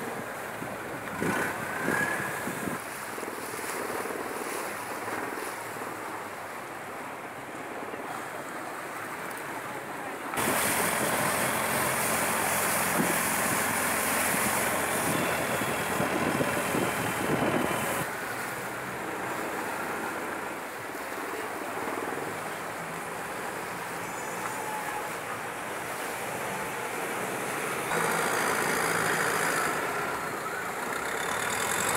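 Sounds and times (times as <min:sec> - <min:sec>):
boat engine running: 0:00.0 - 0:02.8, 0:10.3 - 0:20.4, 0:22.0 - 0:31.9
wind and water noise: 0:00.0 - 0:31.9.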